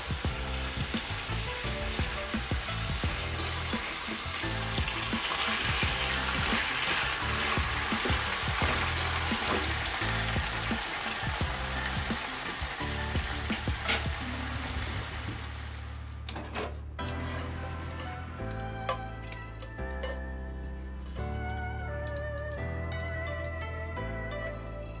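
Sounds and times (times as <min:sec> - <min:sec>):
meat sizzling in a frying pan: 0:00.0 - 0:16.0.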